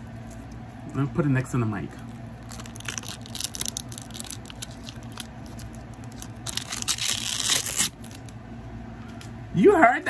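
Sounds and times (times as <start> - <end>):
plastic film crackling: 1.9 - 8.4
plastic film tearing rip: 2.4 - 8.3.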